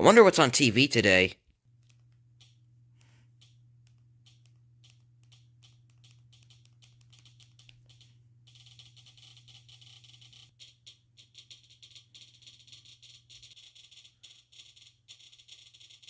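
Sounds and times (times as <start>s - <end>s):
low hum: 1.4s - 15.8s
remote control clicking: 1.5s - 10.0s.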